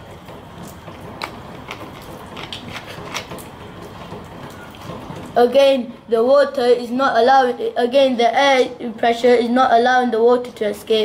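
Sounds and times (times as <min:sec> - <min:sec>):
plastic screw cap twisting: 0:01.2 - 0:03.4.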